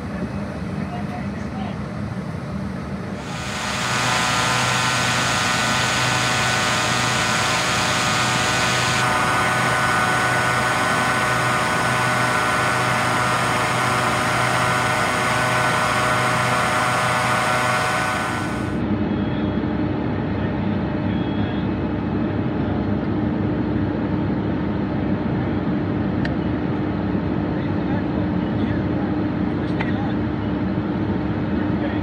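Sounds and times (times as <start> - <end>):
fan engine drone: 0.0 - 32.0
rush of air: 3.2 - 18.8.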